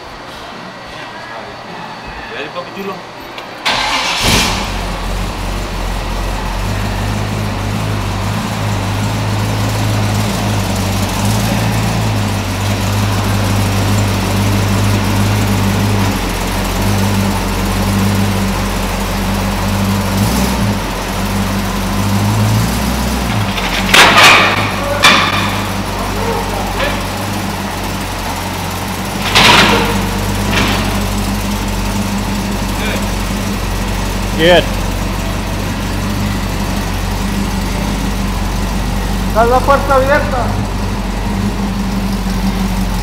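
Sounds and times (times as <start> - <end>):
truck engine starting and idling: 3.4 - 43.0
loud engine burst: 3.6 - 5.5.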